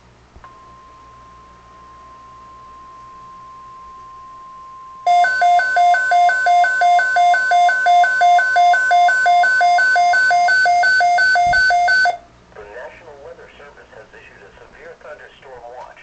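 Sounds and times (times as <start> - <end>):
alternating low and high beeps: 0.4 - 12.2
steady single-pitch warning tone: 0.4 - 12.3.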